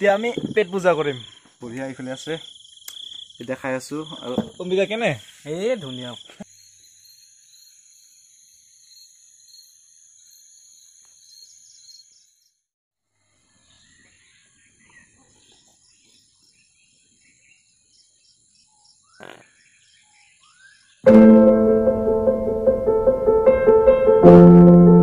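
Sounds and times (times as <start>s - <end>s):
crickets and insects trilling: 0.0s - 10.4s.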